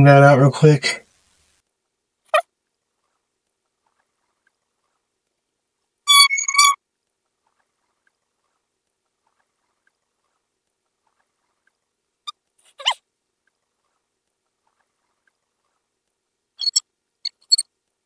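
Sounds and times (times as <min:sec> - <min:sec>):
high-pitched squeaks: 0:06.1 - 0:06.8, 0:12.6 - 0:13.0, 0:16.6 - 0:17.6.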